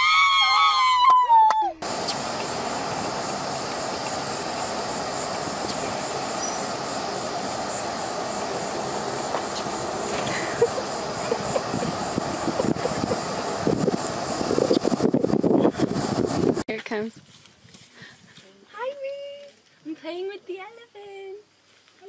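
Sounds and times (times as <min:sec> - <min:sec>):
woman screaming: 0:00.0 - 0:01.8
thin high buzz: 0:01.8 - 0:16.7
outdoor hiss: 0:01.8 - 0:22.0.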